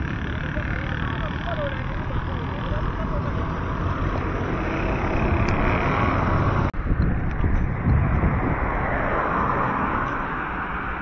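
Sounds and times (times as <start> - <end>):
roadside traffic noise: 0.0 - 11.0
wind buffeting microphone: 3.4 - 11.0
car driving past: 8.0 - 11.0.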